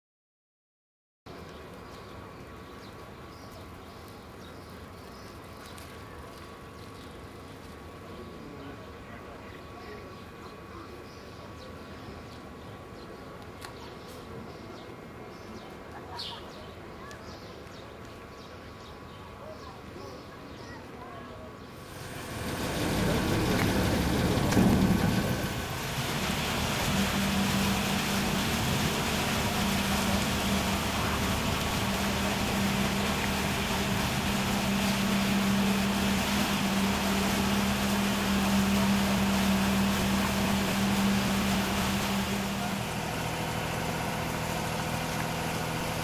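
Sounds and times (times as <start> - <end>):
boat engine humming: 21.8 - 46.0.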